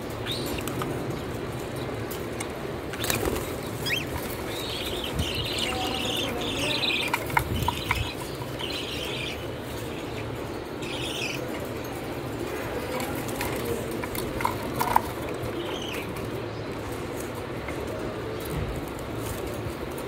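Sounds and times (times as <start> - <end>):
cockatiels chirping: 0.2 - 0.8, 3.0 - 11.6
cage clicks and rattles: 11.5 - 20.0.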